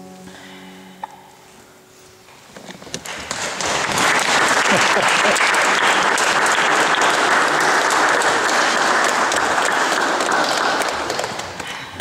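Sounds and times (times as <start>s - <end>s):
audience applauding: 3.0s - 12.0s.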